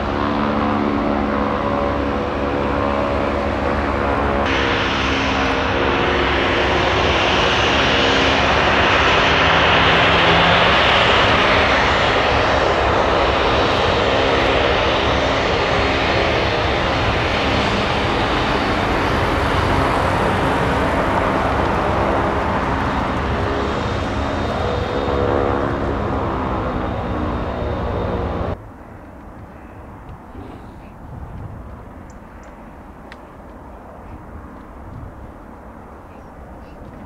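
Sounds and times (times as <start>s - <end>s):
jet engines roaring: 0.0s - 37.0s.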